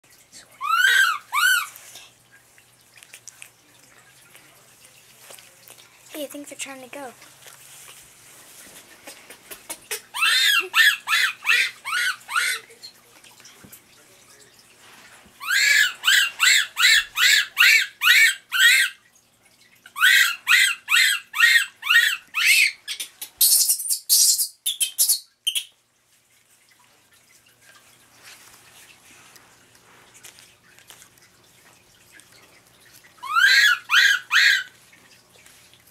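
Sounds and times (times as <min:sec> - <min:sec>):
baby monkey crying: 0:00.6 - 0:01.8, 0:09.8 - 0:12.8, 0:15.4 - 0:19.0, 0:20.0 - 0:22.9, 0:33.2 - 0:34.7.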